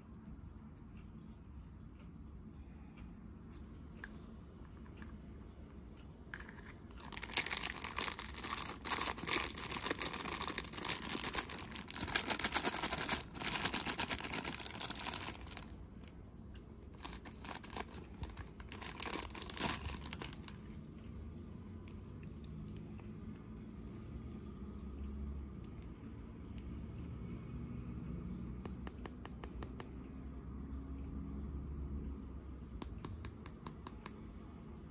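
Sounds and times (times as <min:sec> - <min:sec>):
plastic bag crinkling and tearing: 0:07.0 - 0:15.8, 0:17.0 - 0:20.6.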